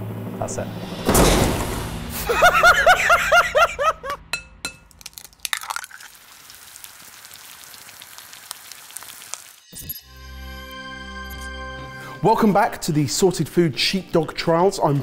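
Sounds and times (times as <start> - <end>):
faint steady sizzle: 5.3 - 9.7.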